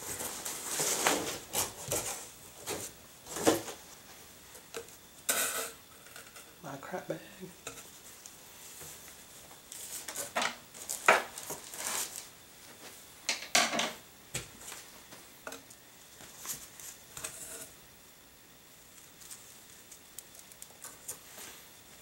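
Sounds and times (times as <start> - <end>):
items being set down: 10.0 - 11.6, 13.3 - 14.8.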